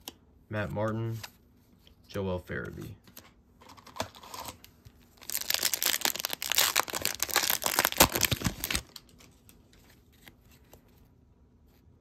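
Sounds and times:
foil wrapper crinkling and tearing: 5.2 - 9.2.

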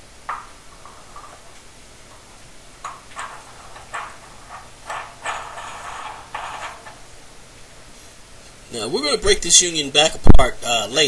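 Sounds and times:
metal pipe fittings clinking: 0.3 - 7.2.

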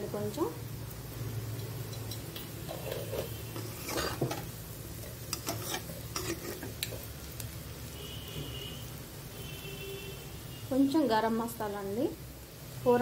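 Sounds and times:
faint frying sizzle: 0.0 - 13.0
utensil scraping a pan: 2.6 - 4.5, 5.2 - 7.0.

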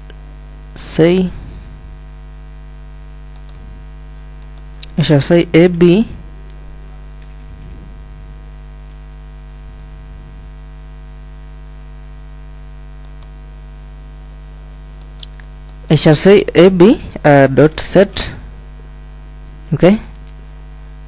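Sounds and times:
electrical mains hum: 0.0 - 21.0
person narrating: 0.8 - 1.8, 4.8 - 6.3, 15.9 - 18.6, 19.7 - 20.2.

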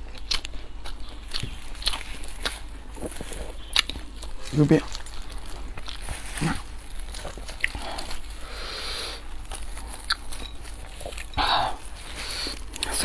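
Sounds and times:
person chewing and biting flatbread: 0.0 - 13.0
plastic gloves rustling: 1.5 - 13.0.

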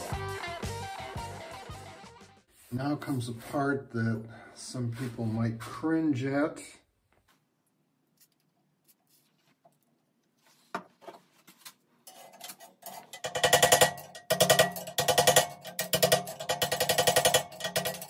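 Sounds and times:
bicycle frame ringing: 12.9 - 18.0
hammer striking screwdriver: 12.9 - 18.0.

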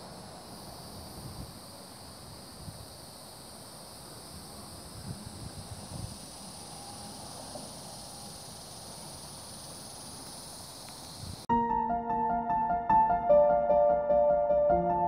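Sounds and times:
high insect chorus: 0.0 - 11.5
wind buffeting microphone: 4.8 - 6.3.

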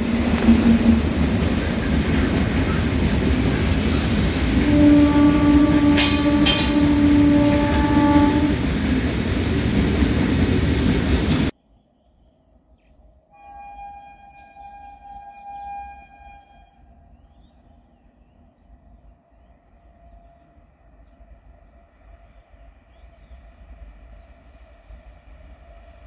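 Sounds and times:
locomotive horn blast: 0.0 - 1.5, 4.6 - 8.7, 13.3 - 16.9
train wheels and coaches rumbling: 0.0 - 11.6.

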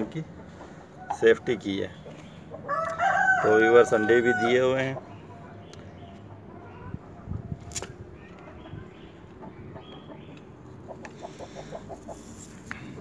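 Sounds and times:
chicken clucking: 8.3 - 12.3.

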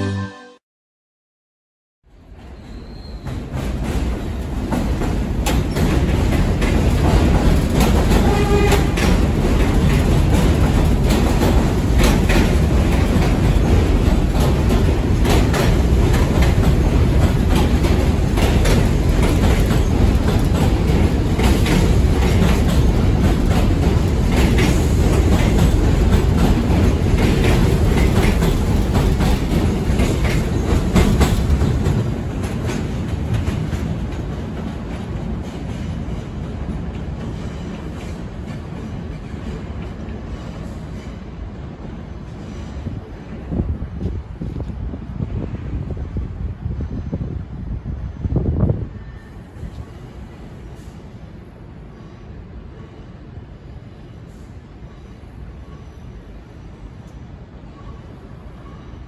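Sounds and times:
train wheel rumble: 2.1 - 59.0
clickety-clack over rail joints: 2.2 - 46.2.

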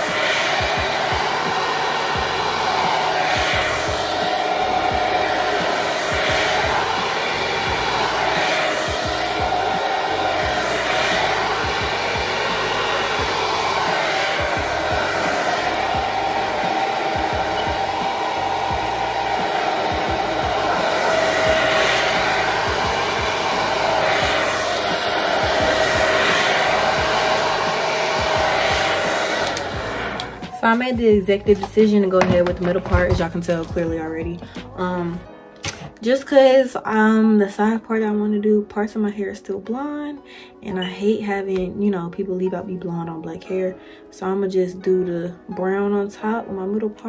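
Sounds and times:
hair dryer blowing: 0.0 - 37.6.

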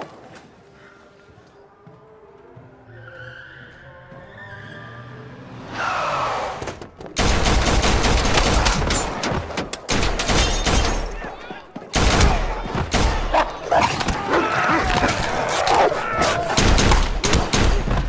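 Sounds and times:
rapid gunfire: 7.2 - 11.0, 11.9 - 13.3, 16.5 - 18.0.

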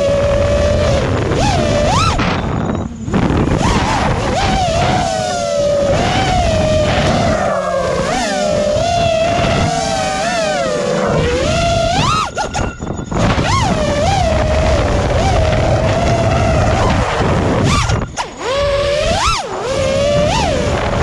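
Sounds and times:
wind rushing: 0.0 - 19.0
drone motors whining: 0.0 - 21.0.

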